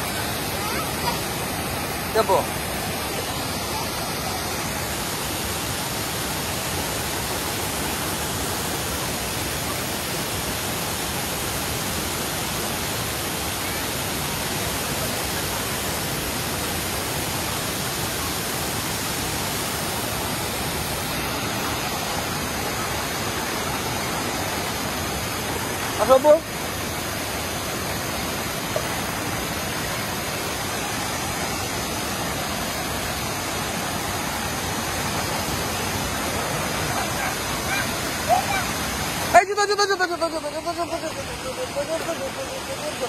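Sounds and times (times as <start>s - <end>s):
waterfall rushing: 0.0s - 43.0s.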